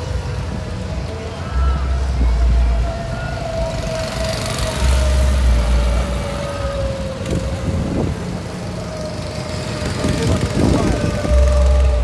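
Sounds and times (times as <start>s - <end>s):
go-kart motor whine: 0.0s - 12.0s.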